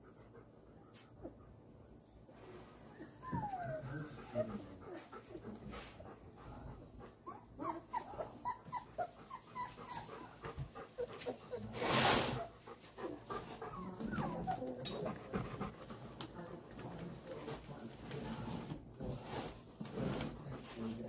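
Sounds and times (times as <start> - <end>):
puppies whimpering: 2.9 - 5.7, 6.6 - 11.8, 12.4 - 15.2.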